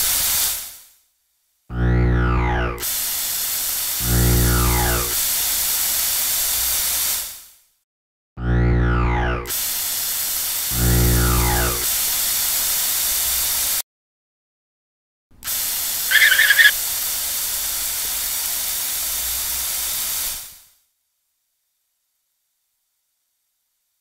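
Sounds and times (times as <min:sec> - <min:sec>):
water spraying from hose nozzle: 0:11.8 - 0:13.8, 0:15.4 - 0:20.6
short sweeping tone: 0:16.1 - 0:16.7.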